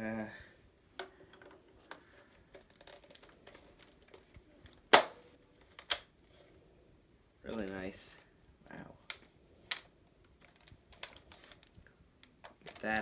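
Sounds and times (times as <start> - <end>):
sharp plastic snaps: 2.6 - 6.1.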